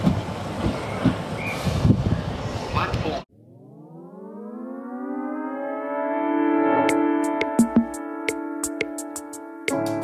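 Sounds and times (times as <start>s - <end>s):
bass line: 3.4s - 8.9s
held synth chord: 3.4s - 10.0s.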